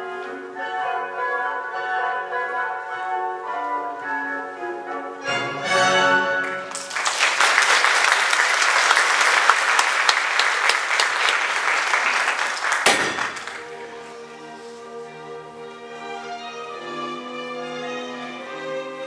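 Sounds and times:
orchestral music: 0.0s - 7.2s, 10.4s - 19.0s
audience applauding: 6.4s - 13.7s.

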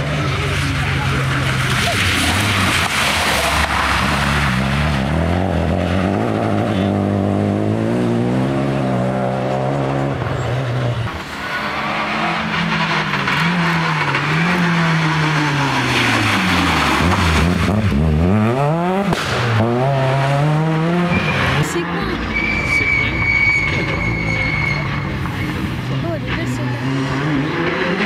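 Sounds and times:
rally car engines at full throttle: 0.0s - 28.0s
exhaust pop: 19.0s - 20.0s.

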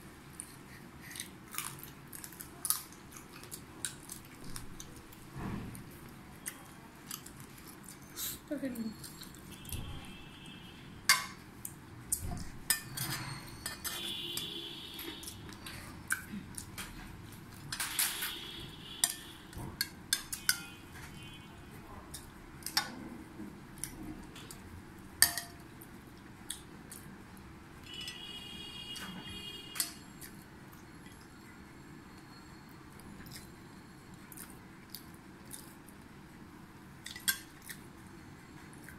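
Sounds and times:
spoon clinking on ceramic bowls: 12.7s - 14.6s.

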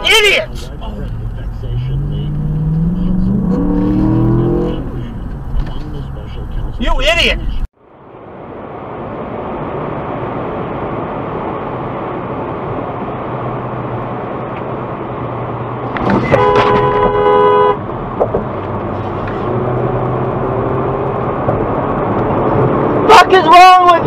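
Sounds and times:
car road and tyre noise: 0.0s - 24.0s
car horn blaring: 16.1s - 17.8s.

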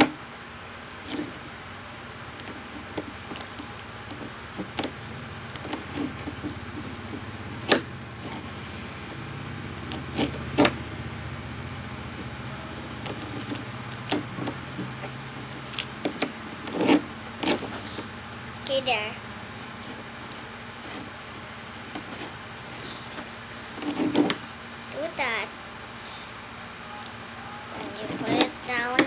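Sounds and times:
low hum: 0.0s - 28.8s.

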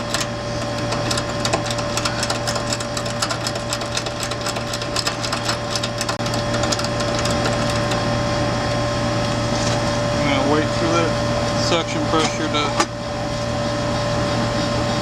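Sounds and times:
ratchet wrench clicking: 0.0s - 8.0s
air conditioning unit humming: 0.0s - 15.0s.

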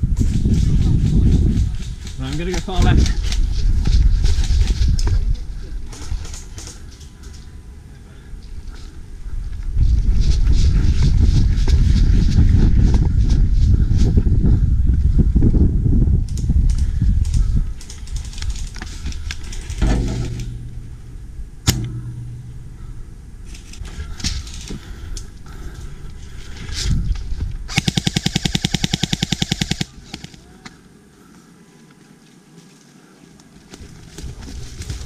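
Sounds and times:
rustling movement: 16.8s - 30.5s
airsoft rifle automatic burst: 27.7s - 30.3s
sharp clicks: 27.7s - 30.4s.

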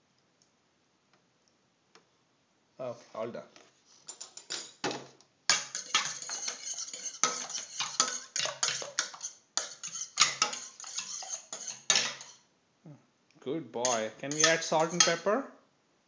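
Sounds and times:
utensil beating eggs in metal pan: 5.5s - 12.5s, 13.8s - 15.3s.

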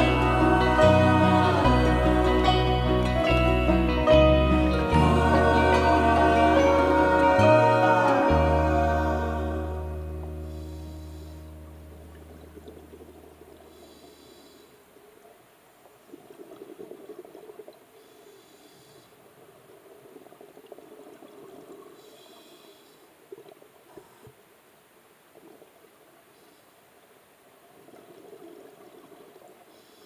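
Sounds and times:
regulator inhale hiss: 10.3s - 11.7s, 13.7s - 14.8s, 18.0s - 19.2s, 22.0s - 23.1s, 29.7s - 30.0s.

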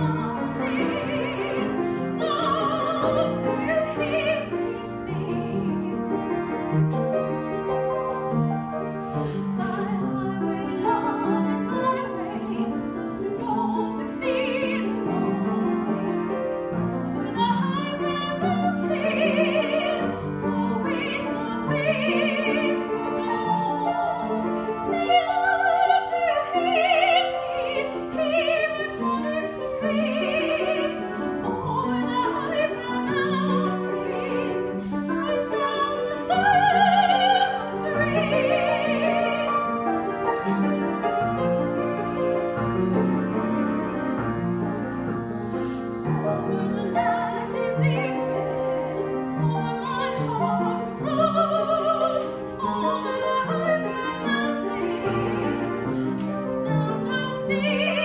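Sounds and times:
woman singing operatically: 0.0s - 6.0s, 9.3s - 15.9s, 16.9s - 39.6s, 46.5s - 55.8s, 56.5s - 58.0s
grand piano accompaniment: 0.0s - 58.0s.

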